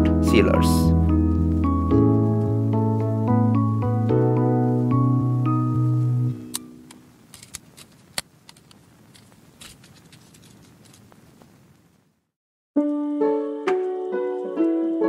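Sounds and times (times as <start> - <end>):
piano music: 0.0 - 6.9, 12.8 - 15.0
plastic wrapping crinkling: 6.9 - 11.9.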